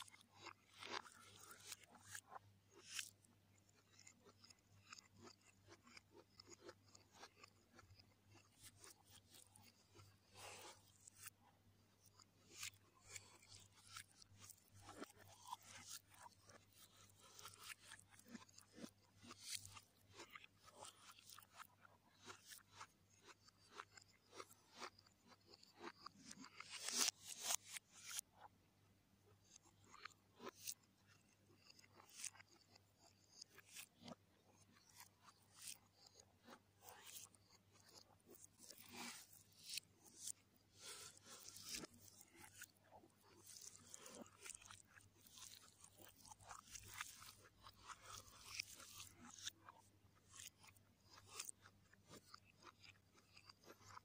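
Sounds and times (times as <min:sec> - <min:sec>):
reversed chewing and crunching: 0:00.0 - 0:54.0
fingers scraping noodles on plate: 0:03.9 - 0:08.1, 0:31.5 - 0:49.4.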